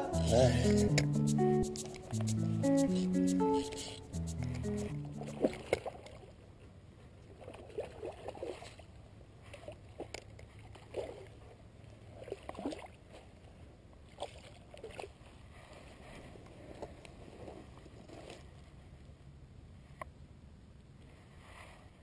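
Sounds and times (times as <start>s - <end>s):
background music: 0.0s - 5.7s.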